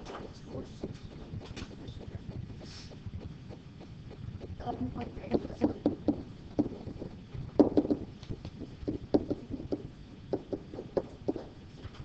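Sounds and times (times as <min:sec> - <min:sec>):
pen tapping on whiteboard: 0:03.5 - 0:11.6.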